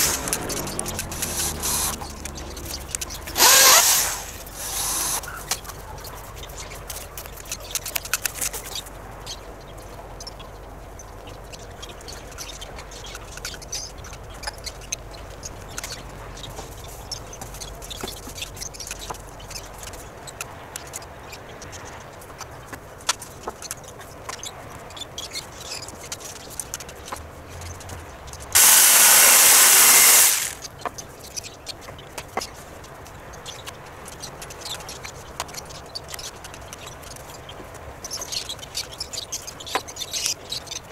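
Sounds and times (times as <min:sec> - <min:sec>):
power tool running: 0:00.0 - 0:02.0, 0:03.3 - 0:05.2, 0:28.6 - 0:30.6.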